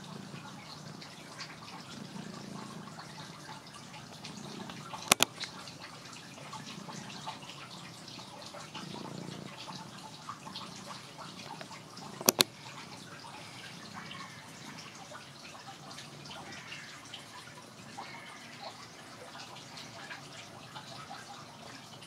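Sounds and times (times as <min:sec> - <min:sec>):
cat purring: 0:00.0 - 0:22.0
sharp double clicks: 0:05.0 - 0:05.5, 0:12.2 - 0:12.5.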